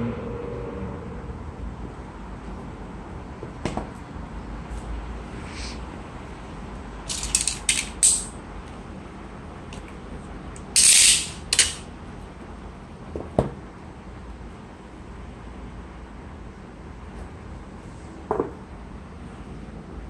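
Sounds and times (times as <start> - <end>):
knock: 18.3 - 18.6.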